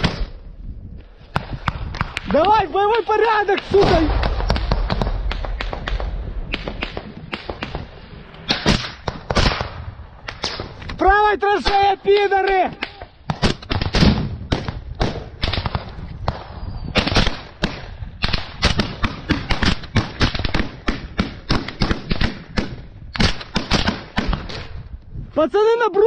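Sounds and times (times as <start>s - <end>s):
rifle shots: 3.6s - 10.8s, 13.3s - 24.7s.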